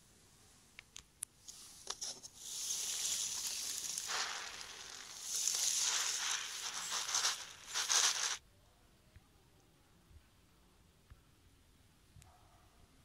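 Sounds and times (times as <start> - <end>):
small pellets rattling in cardboard tray: 2.1 - 8.4.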